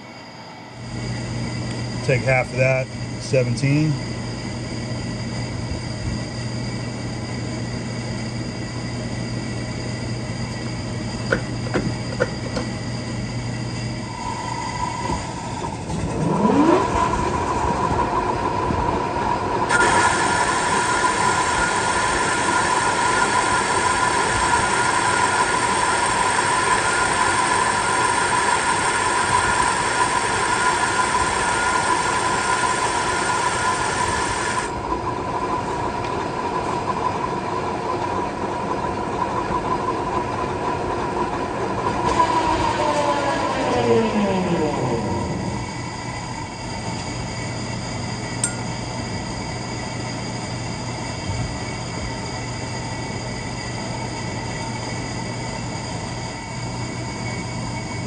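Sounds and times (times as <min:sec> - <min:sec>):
lathe gear whine: 0:00.0 - 0:58.0
boring bar cutting hiss: 0:19.7 - 0:34.7.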